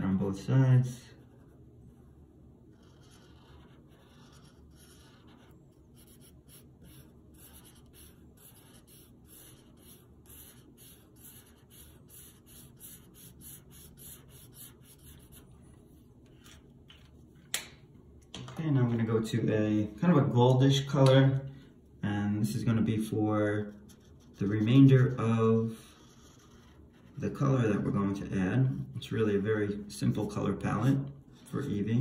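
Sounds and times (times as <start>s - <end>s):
marker rubbing on paper: 2.7s - 17.1s, 23.0s - 27.8s.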